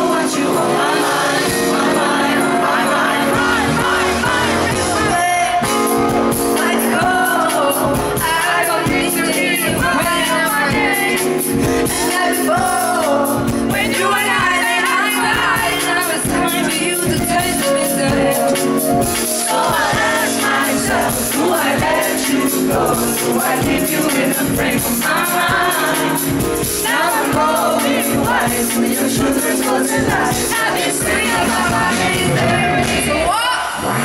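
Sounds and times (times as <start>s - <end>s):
live band with bass and beat: 0.0s - 34.0s
woman singing into microphone: 6.6s - 22.4s.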